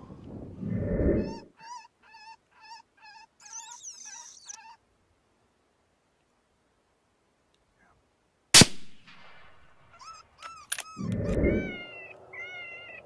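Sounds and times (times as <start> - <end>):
high-pitched wavering cries: 1.2 - 4.8, 9.9 - 13.0
gunshot: 8.6 - 9.6.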